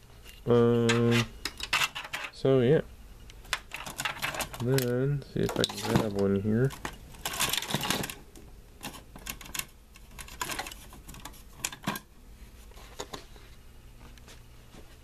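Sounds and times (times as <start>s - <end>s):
circuit board scraping and rattling: 0.3s - 2.4s, 3.6s - 8.2s, 8.8s - 12.0s.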